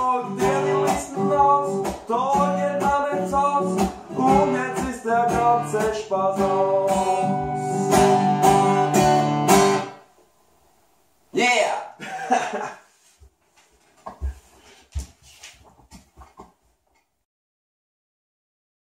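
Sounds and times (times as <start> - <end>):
man singing into a microphone: 0.0 - 7.5
strummed acoustic guitar: 0.0 - 10.0.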